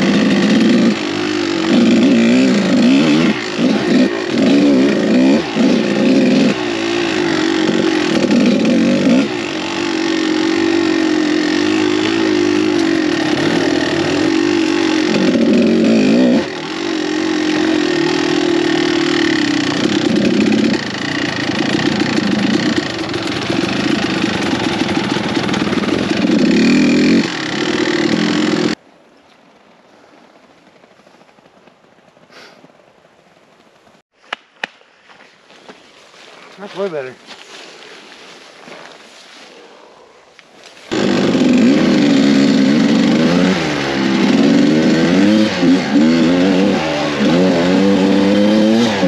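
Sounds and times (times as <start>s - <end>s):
dirt bike engine revving: 0.0s - 28.8s, 40.9s - 49.0s.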